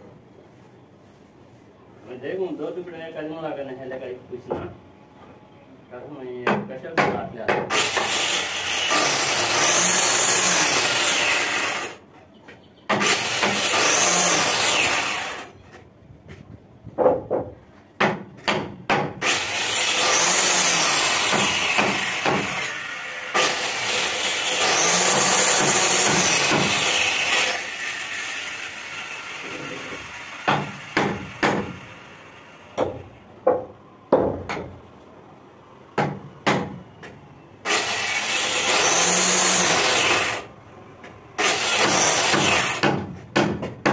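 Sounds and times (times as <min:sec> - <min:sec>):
electric hand planer cutting wood: 0:07.7 - 0:12.0, 0:13.0 - 0:15.5, 0:19.2 - 0:32.1, 0:37.7 - 0:40.5, 0:41.4 - 0:42.8
wooden knocks: 0:16.3 - 0:19.1.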